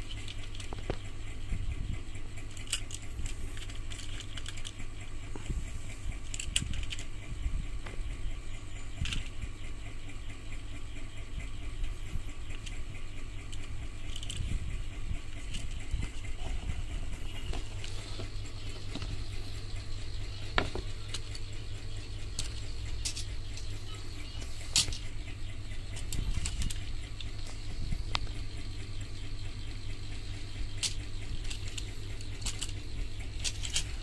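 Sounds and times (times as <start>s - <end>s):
plastic toy cars clicking: 0.0s - 1.1s, 2.2s - 5.4s, 6.0s - 7.2s, 9.0s - 9.4s, 13.4s - 14.5s, 15.3s - 16.4s, 20.5s - 25.2s, 25.9s - 28.4s, 30.2s - 34.0s
steady low rumble: 0.0s - 34.0s.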